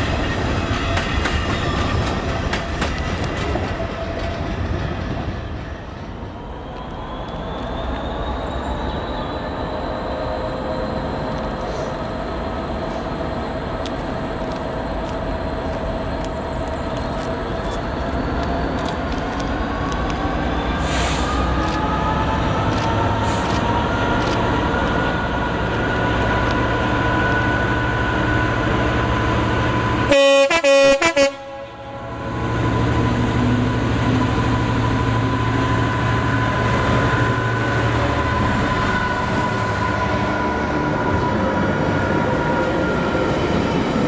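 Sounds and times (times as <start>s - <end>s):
diesel locomotive engine: 0.0s - 44.0s
train wagons rumbling past: 0.0s - 44.0s
short loud horn toots: 30.1s - 31.9s.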